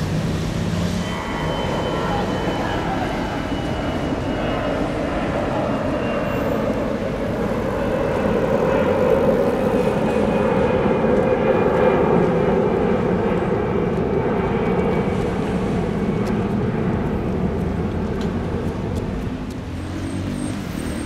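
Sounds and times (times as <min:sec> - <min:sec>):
jet engines roaring: 0:00.0 - 0:21.0.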